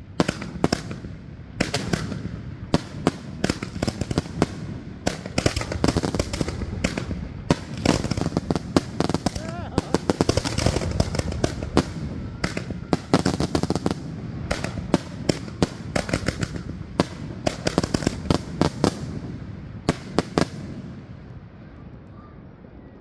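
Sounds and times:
fireworks crackling: 0.0s - 21.5s
continuous rumble: 0.0s - 23.0s
fireworks shells bursting: 5.1s - 16.8s.

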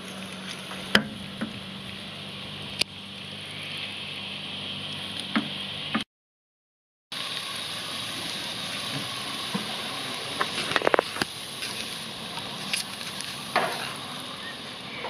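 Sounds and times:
food sizzling on grill: 7.2s - 15.0s
sharp crackles: 7.2s - 15.0s.

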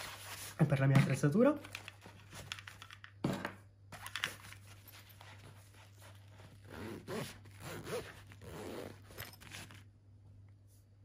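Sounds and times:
cable being handled: 1.6s - 3.2s, 4.0s - 6.7s
fabric rustling: 4.4s - 9.9s
backpack zipper: 6.4s - 9.8s.

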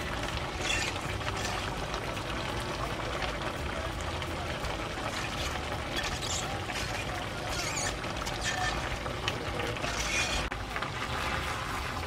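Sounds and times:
metal ladle scraping a pan: 0.4s - 2.0s, 5.0s - 10.6s.

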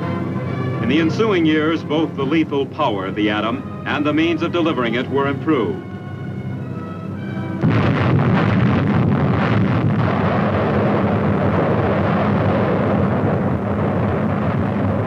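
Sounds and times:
explosion roar and rumble: 7.6s - 15.0s.

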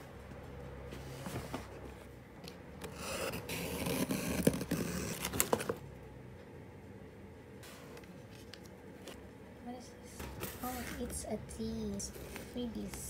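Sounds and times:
paper and cardboard rustling: 3.5s - 5.8s.

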